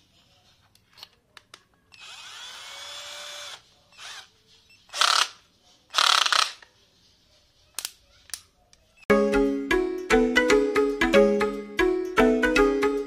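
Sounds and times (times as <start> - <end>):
cordless drill motor whining: 1.9 - 4.3.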